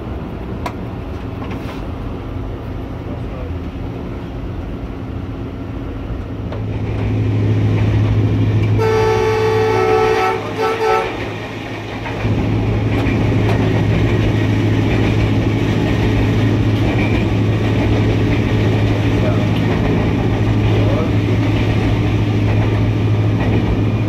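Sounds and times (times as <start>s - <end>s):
diesel locomotive engine running: 0.0s - 24.0s
locomotive horn blasts: 8.8s - 11.2s.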